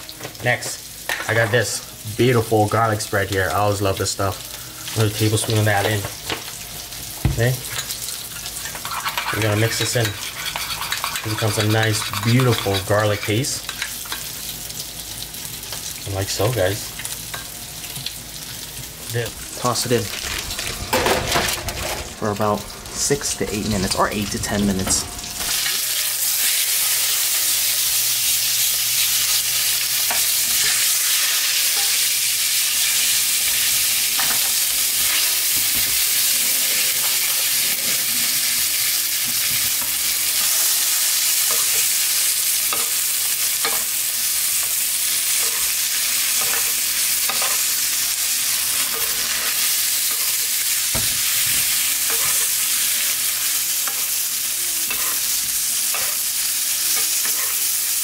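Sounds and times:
steak sizzling in a frying pan: 0:00.0 - 0:24.3, 0:25.2 - 0:58.0
tongs and spoon scraping a pan: 0:07.8 - 0:14.4, 0:39.3 - 0:50.6, 0:51.2 - 0:54.2, 0:54.9 - 0:56.3, 0:56.9 - 0:57.8.

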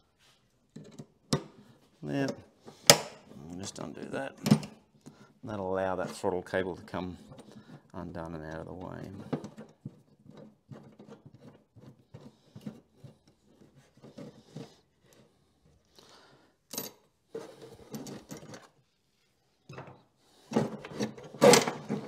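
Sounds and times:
metal parts clicking and scraping: 0:16.7 - 0:18.8.

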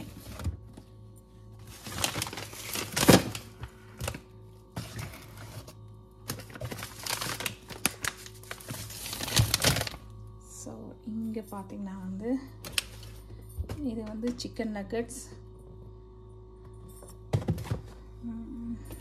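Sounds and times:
boxes and packet handled on shelf: 0:00.0 - 0:10.2, 0:16.6 - 0:19.0
steady low hum: 0:00.0 - 0:19.0.

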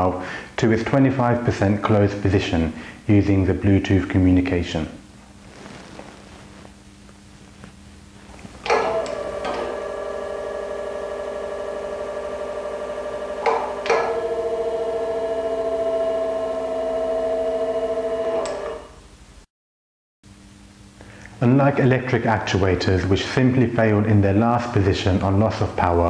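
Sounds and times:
pump motor humming: 0:08.6 - 0:18.8.

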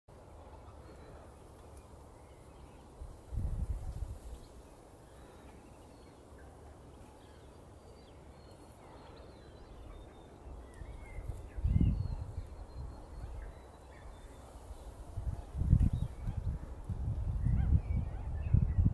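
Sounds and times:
low wind rumble on microphone: 0:02.2 - 0:05.4, 0:08.2 - 0:18.9.

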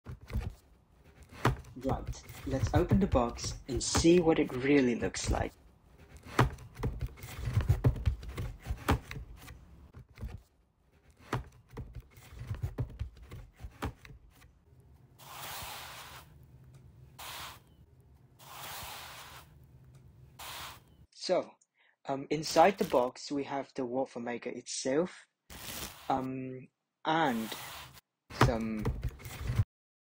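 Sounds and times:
packaging scraping out of box: 0:25.5 - 0:26.1, 0:27.4 - 0:28.0.

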